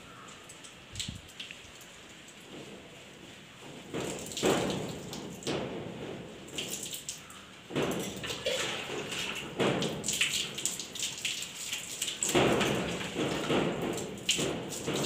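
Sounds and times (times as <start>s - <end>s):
water poured splashing on concrete: 3.8s - 15.0s.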